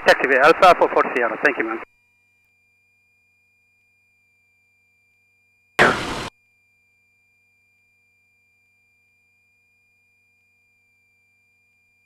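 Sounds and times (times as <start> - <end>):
burst of radio static: 5.8 - 6.3.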